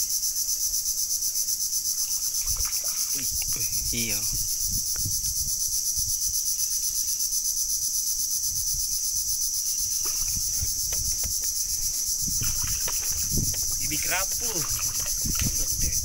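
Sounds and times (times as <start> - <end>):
insect chorus: 0.0 - 16.0
faint knocks and thumps: 10.0 - 15.9.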